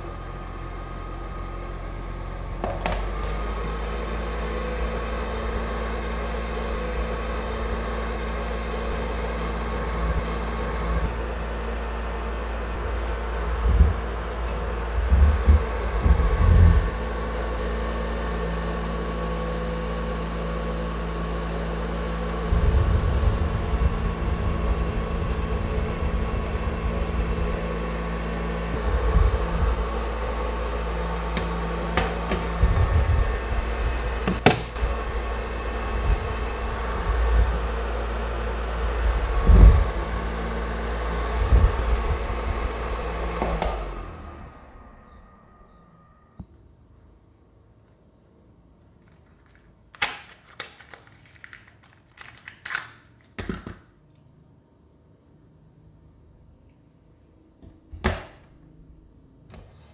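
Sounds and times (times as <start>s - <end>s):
low rumbling: 0.0s - 47.9s
fan motor hum: 0.0s - 59.9s
paper strips fluttering: 49.0s - 53.4s.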